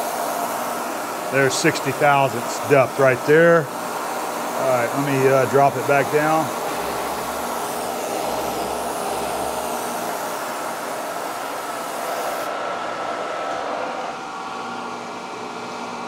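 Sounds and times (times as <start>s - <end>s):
coolant mist spraying hiss: 0.0s - 12.5s
milling machine running: 0.0s - 16.0s.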